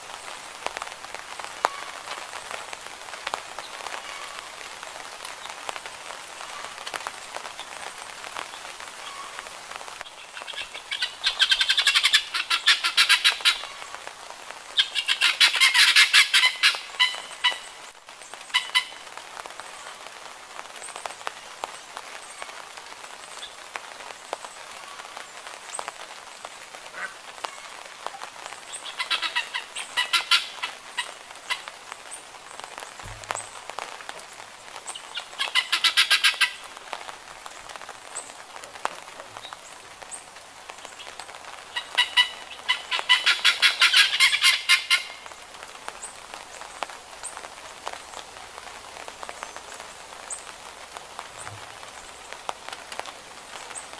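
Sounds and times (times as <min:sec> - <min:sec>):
light rain pattering: 0:00.0 - 0:53.9
guineafowl calling: 0:01.6 - 0:02.0, 0:04.0 - 0:04.5, 0:09.0 - 0:09.4, 0:10.0 - 0:13.9, 0:14.8 - 0:17.8, 0:18.5 - 0:19.0, 0:26.9 - 0:27.7, 0:28.7 - 0:31.8, 0:35.0 - 0:36.7, 0:41.7 - 0:45.3.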